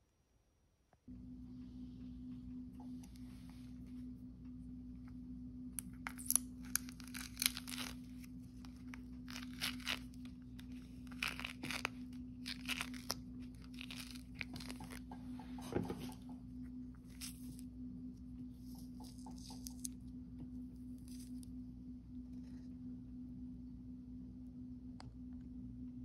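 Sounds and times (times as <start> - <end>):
orange peel tearing: 5.8 - 15.1, 18.6 - 20.0.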